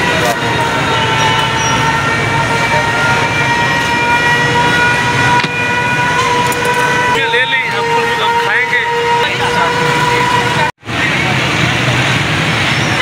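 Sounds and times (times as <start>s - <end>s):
traffic noise: 0.0s - 13.0s.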